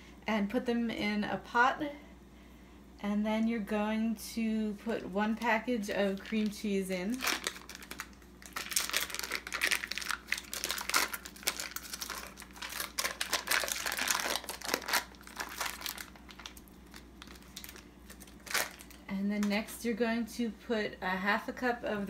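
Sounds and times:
foil wrapper crinkling: 6.1s - 19.1s.

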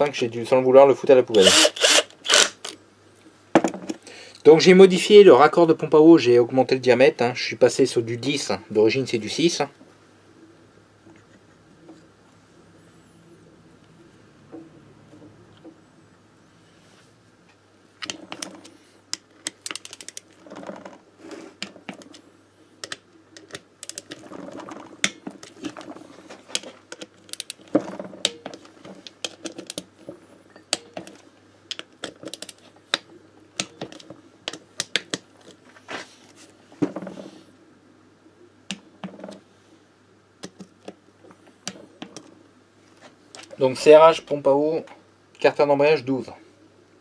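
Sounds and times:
hand tools clicking: 1.4s - 2.8s.

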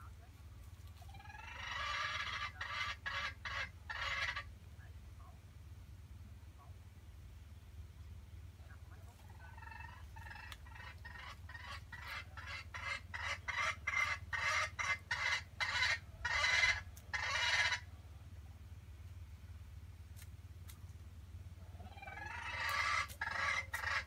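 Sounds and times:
chicken clucking: 0.2s - 4.5s, 8.8s - 18.0s, 21.6s - 24.0s.

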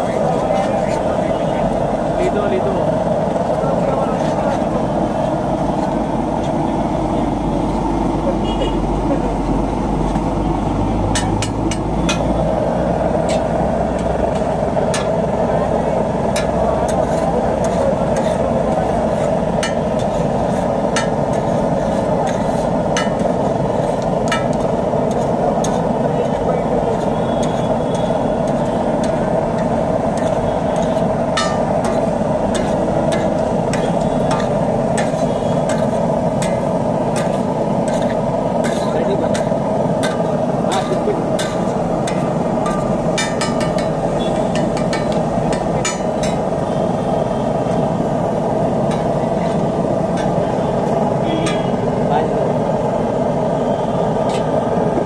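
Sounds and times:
steady background noise: 0.0s - 55.0s
spatula scraping on griddle: 13.0s - 15.3s, 16.1s - 46.9s, 47.7s - 51.8s
sharp metal strikes: 30.2s - 46.6s.

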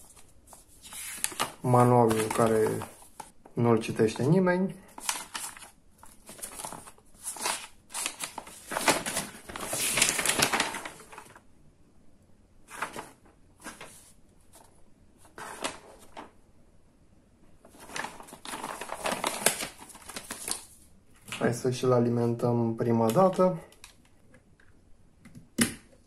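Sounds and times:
paper rustling: 0.0s - 3.4s, 4.9s - 11.4s, 12.7s - 16.4s, 17.6s - 21.6s.

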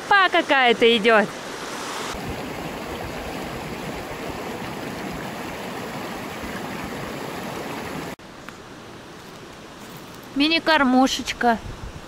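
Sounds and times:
stream rushing over rocks: 0.7s - 8.2s.

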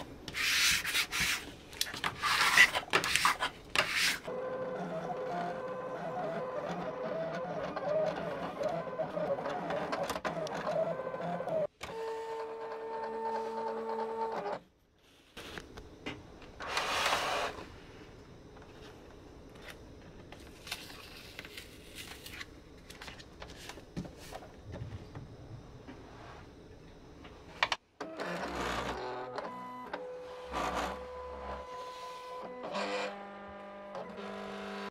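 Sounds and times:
cutting machine motors whirring: 4.3s - 14.6s, 28.0s - 34.9s.

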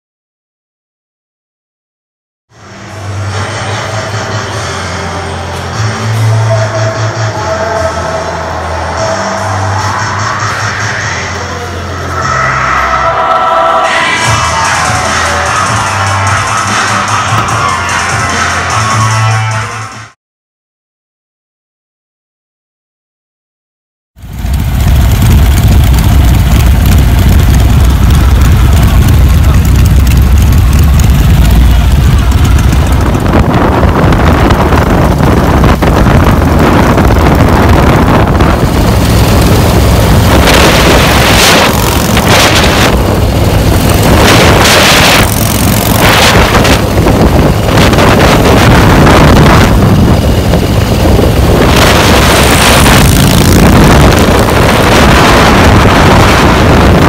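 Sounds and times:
road noise: 2.5s - 20.2s, 24.2s - 57.0s
motorcycle engines rumbling: 2.6s - 20.2s, 24.2s - 57.0s
wind buffeting microphone: 24.5s - 57.0s.

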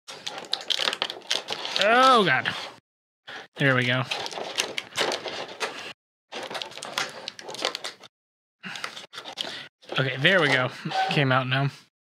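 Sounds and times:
plastic packaging crinkling: 0.1s - 2.2s, 6.3s - 8.0s.

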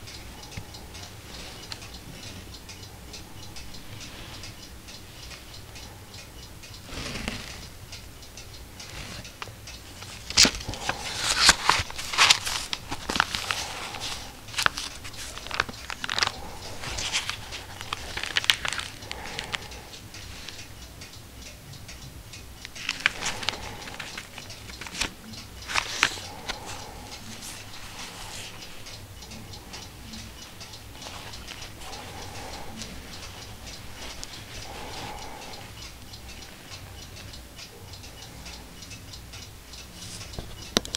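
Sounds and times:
stiff paper crackling and rustling: 10.0s - 19.6s, 22.8s - 25.1s, 25.7s - 26.8s.

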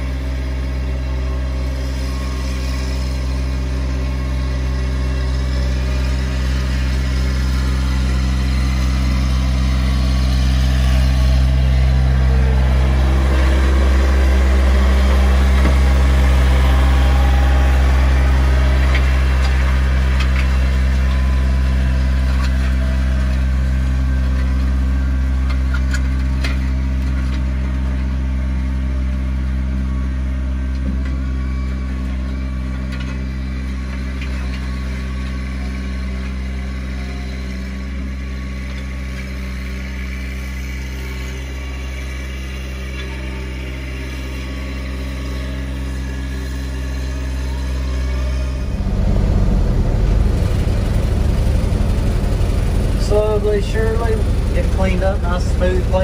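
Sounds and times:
excavator diesel engine idling: 0.0s - 56.0s
tractor engine running: 0.0s - 56.0s.

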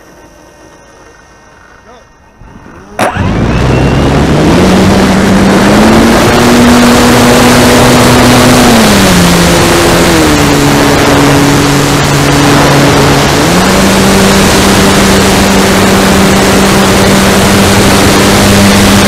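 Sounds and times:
model plane motor and propeller: 0.0s - 19.0s.

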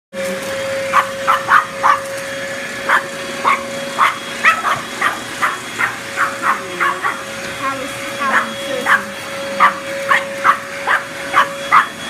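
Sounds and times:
vacuum cleaner running: 0.1s - 12.0s
dog barking: 0.9s - 2.1s, 2.9s - 7.2s, 8.3s - 12.0s.

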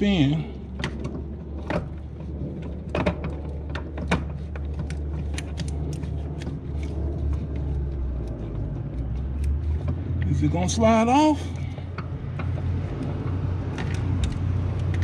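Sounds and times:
steady low rumble: 0.0s - 15.0s.

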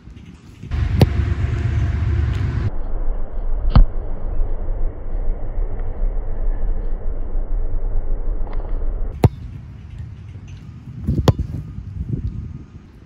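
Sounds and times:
wind buffeting microphone: 0.0s - 2.9s, 3.8s - 13.0s
sharp thud: 0.7s - 2.7s.

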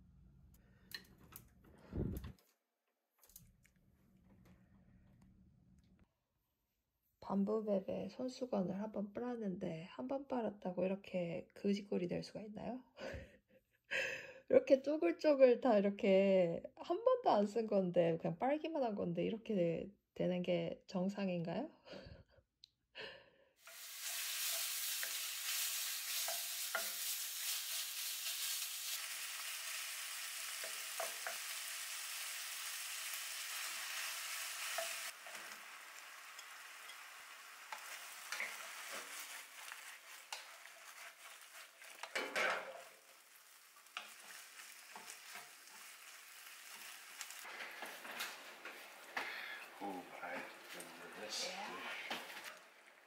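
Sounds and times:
food sizzling in a pan: 23.6s - 53.0s.

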